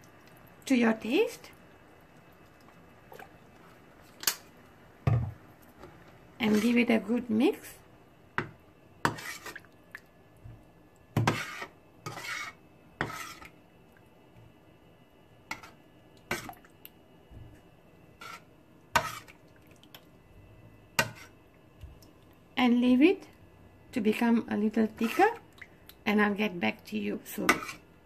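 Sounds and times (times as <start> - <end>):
metal spoon scraping frying pan: 6.4 - 6.9, 9.0 - 9.6, 11.2 - 13.5, 18.2 - 19.4, 21.0 - 21.4, 25.0 - 25.4, 27.3 - 27.9.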